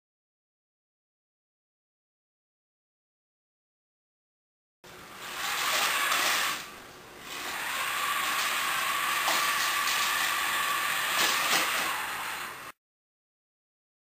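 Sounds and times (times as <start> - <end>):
toy robot motor whine: 5.2 - 12.8.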